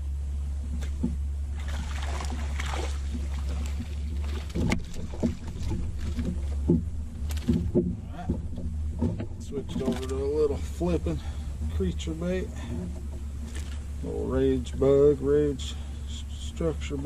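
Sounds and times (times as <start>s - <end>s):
steady low hum: 0.0s - 17.0s
fish splashing at the surface: 1.5s - 6.4s
sharp knocks: 3.1s - 10.6s.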